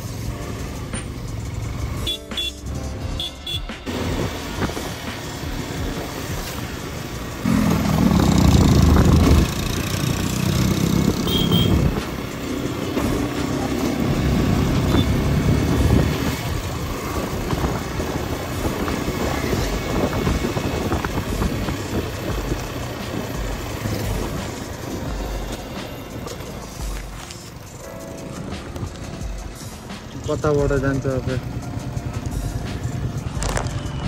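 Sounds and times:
motorcycle engine running: 0.0s - 34.0s
wind noise on microphone: 8.0s - 9.9s, 10.8s - 12.2s, 14.4s - 23.5s.

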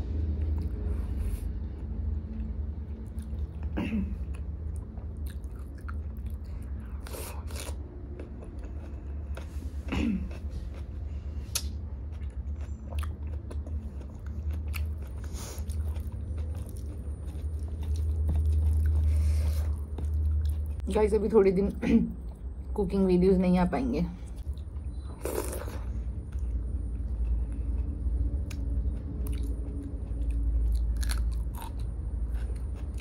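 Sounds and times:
close chewing: 4.3s - 9.6s, 10.2s - 20.8s, 24.4s - 33.0s
lip smacks: 11.5s - 11.8s
wet mouth clicks: 11.5s - 11.8s.

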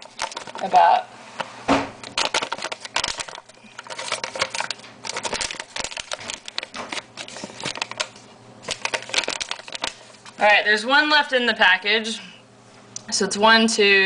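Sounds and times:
snack pouch crinkling: 0.0s - 0.8s, 2.0s - 10.4s.

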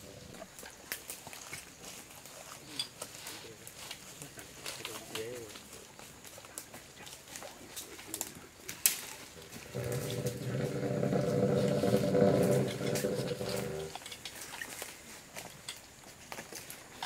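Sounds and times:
clicks and rustles of handling: 0.9s - 17.0s
elephant rumbling: 9.3s - 14.2s.

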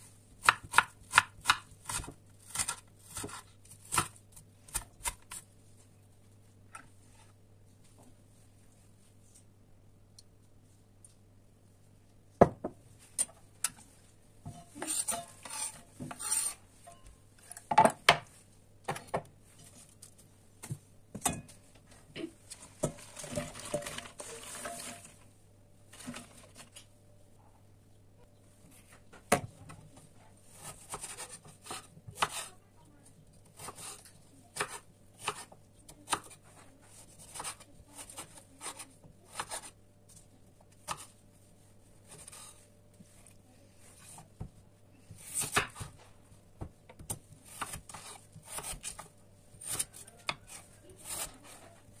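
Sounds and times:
knife chopping on wooden board: 0.4s - 4.1s
pea pods rustling into pot: 22.5s - 26.9s.

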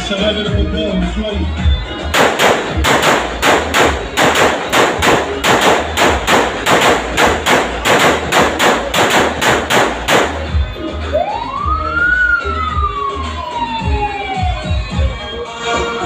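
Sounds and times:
rapid sharp bangs: 2.1s - 10.7s.

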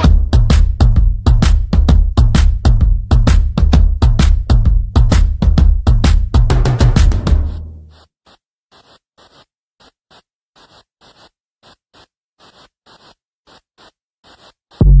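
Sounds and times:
bass-heavy beat: 0.0s - 7.9s, 14.8s - 15.0s
drum beat: 0.0s - 8.0s.

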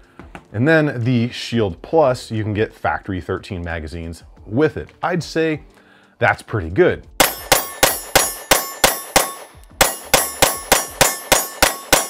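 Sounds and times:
metallic ring: 7.2s - 12.0s
pistol shots: 7.2s - 12.0s.

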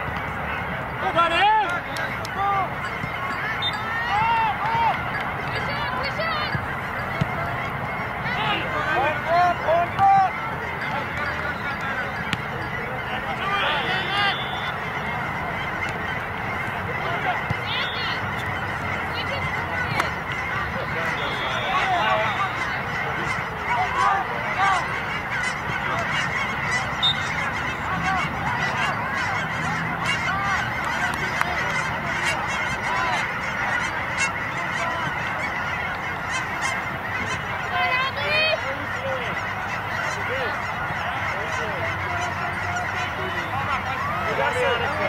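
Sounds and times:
geese honking: 0.0s - 45.0s.

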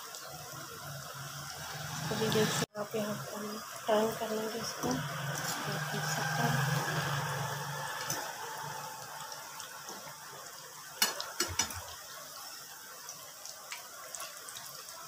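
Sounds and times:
oil sizzling and crackling: 0.0s - 15.0s.

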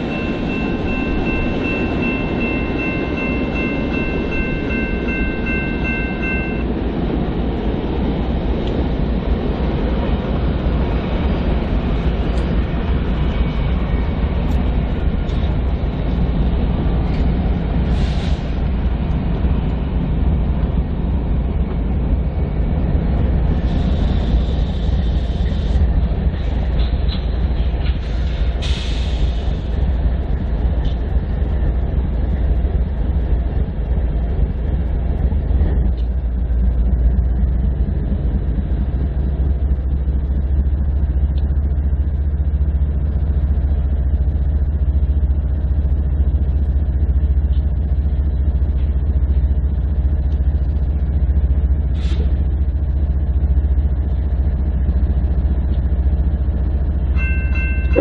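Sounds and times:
high ringing tone: 0.0s - 6.8s, 57.1s - 58.0s
train wheels rumbling on rail: 0.0s - 58.0s.

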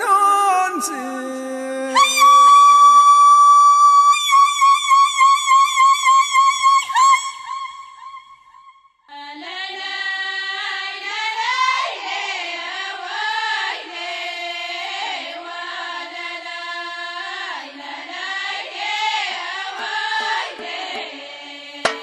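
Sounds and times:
chorus of voices singing: 9.1s - 22.0s.

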